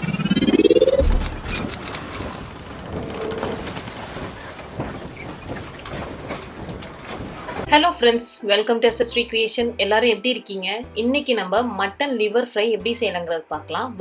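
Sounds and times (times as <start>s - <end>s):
low boom: 0.0s - 1.8s
rising whoosh: 0.0s - 2.0s
scattered clicks: 0.7s - 2.4s.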